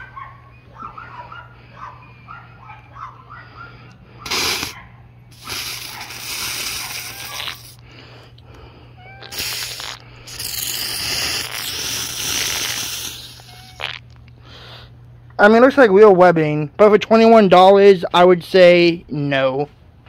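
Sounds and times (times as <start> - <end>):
aerosol can spraying: 4.2 - 7.8, 9.2 - 13.9.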